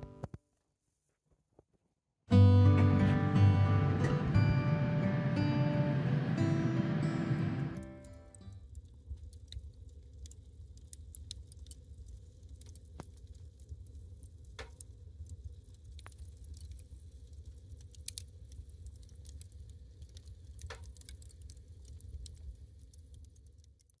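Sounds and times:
low steady rumble: 0:02.3 - 0:10.8
wood fire crackling: 0:02.3 - 0:24.0.

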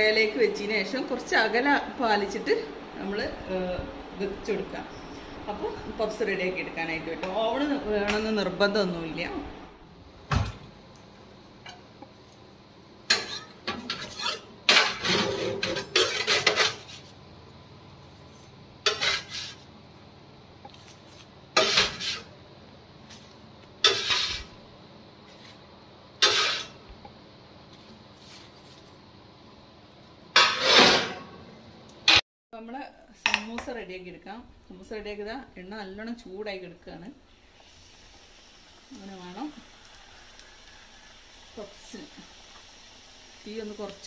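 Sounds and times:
metal spatula scraping oven tray: 0:13.1 - 0:17.0, 0:18.8 - 0:19.6, 0:21.6 - 0:22.3, 0:23.8 - 0:24.5, 0:26.2 - 0:26.8, 0:30.4 - 0:31.3.

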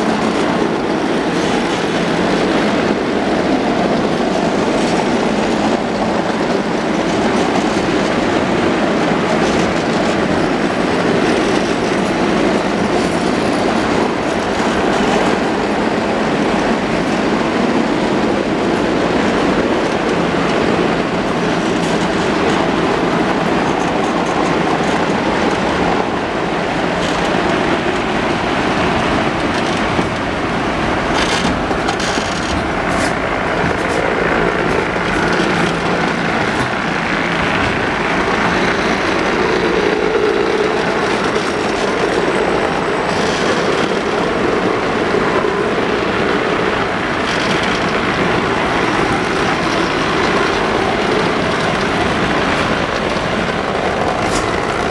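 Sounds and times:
tram wheels rumbling on rails: 0:00.0 - 0:54.9
sharp clicks and rattles: 0:31.0 - 0:45.1, 0:46.2 - 0:54.9.

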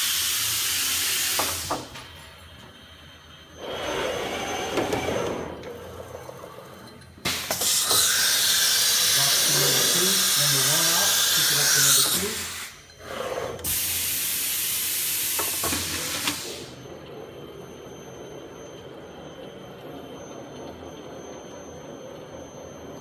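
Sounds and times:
compressed air hissing: 0:07.2 - 0:12.8, 0:13.6 - 0:16.7
machine hum: 0:16.6 - 0:23.0.

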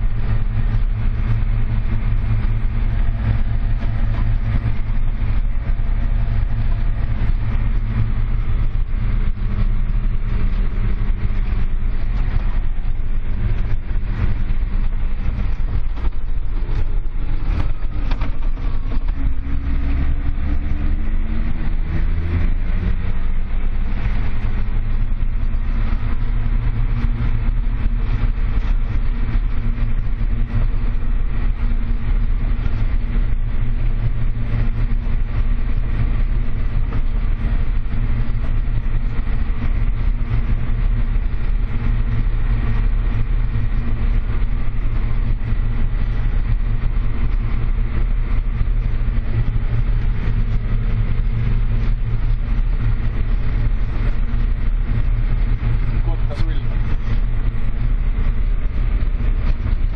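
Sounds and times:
tractor diesel engine droning: 0:00.0 - 0:59.9.

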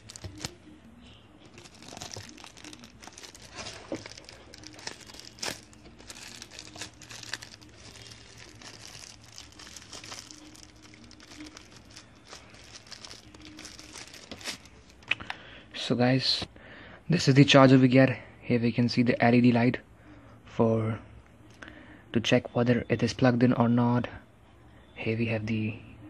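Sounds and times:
wrapping crinkling and crackling: 0:00.0 - 0:00.7, 0:01.4 - 0:15.2.

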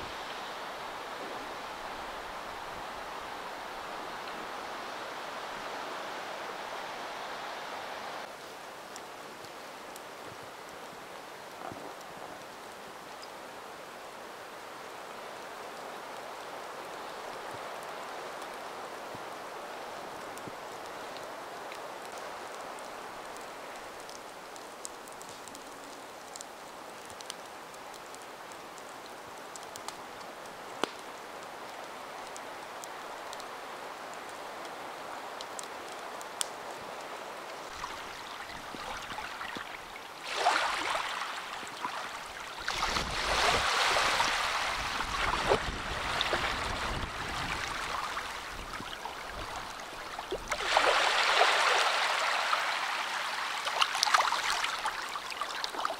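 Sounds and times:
waves washing onto sandy beach: 0:00.0 - 0:28.7, 0:29.4 - 0:55.9.

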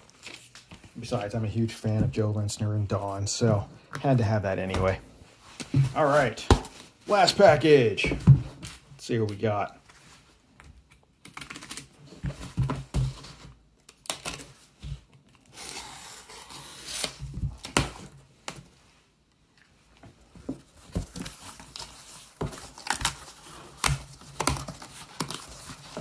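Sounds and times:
packing tape ripping: 0:15.4 - 0:18.0.

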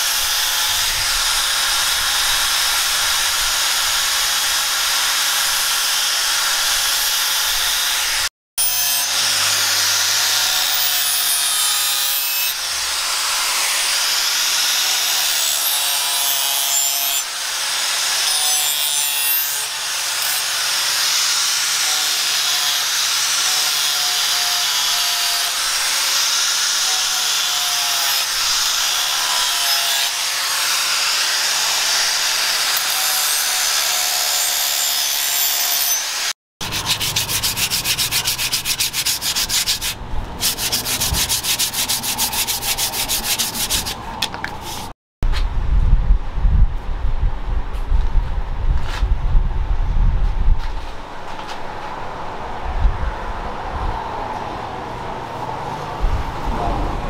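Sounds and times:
angle grinder sanding metal: 0:00.0 - 0:45.0
rubbing strokes on wood: 0:36.6 - 0:45.0.

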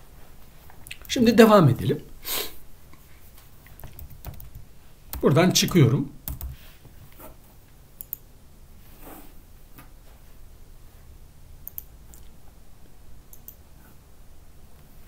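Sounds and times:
faint low hum: 0:00.0 - 0:15.0
keyboard keystrokes: 0:03.8 - 0:06.6.

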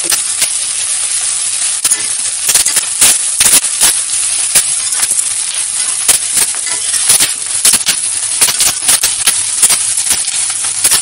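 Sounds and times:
onions sizzling in oil: 0:00.0 - 0:11.0
metal spatula scraping pan: 0:04.8 - 0:07.3.

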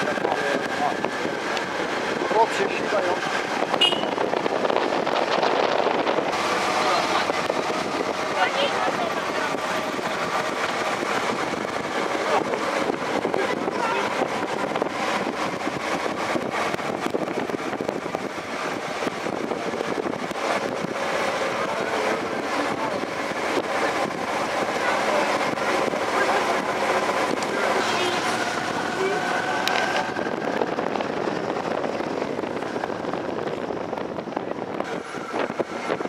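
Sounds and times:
bicycle tyre rumble: 0:00.0 - 0:36.0
wind: 0:00.0 - 0:36.0
faint voices: 0:21.3 - 0:30.4.

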